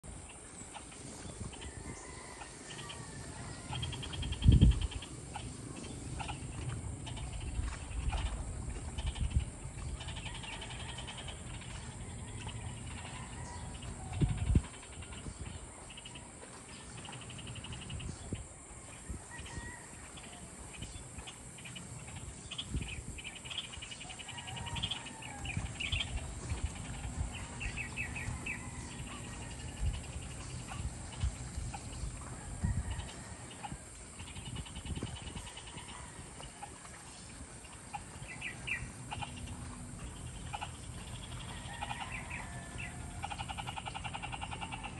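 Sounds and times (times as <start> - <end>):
high insect drone: 0.1 - 44.9.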